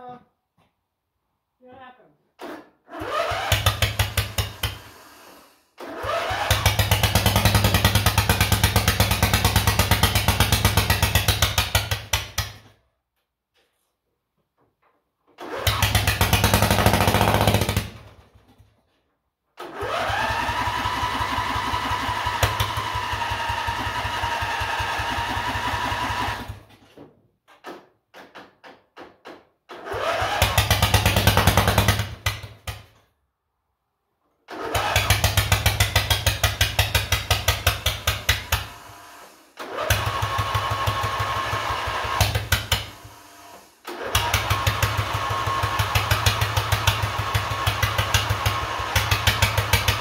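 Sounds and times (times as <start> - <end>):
lawn mower engine running roughly: 3.1 - 12.5, 15.4 - 18.2, 19.8 - 26.7, 30.0 - 32.4, 34.6 - 43.2, 43.9 - 50.0.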